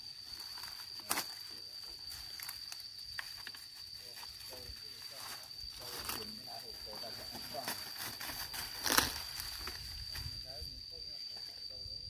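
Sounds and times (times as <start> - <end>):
dry leaves rustling and crackling: 5.1 - 10.0.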